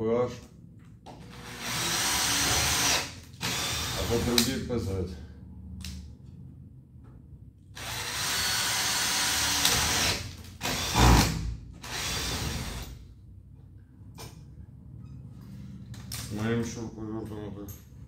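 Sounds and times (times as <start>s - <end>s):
cordless screwdriver running: 1.4s - 4.3s, 7.8s - 11.3s.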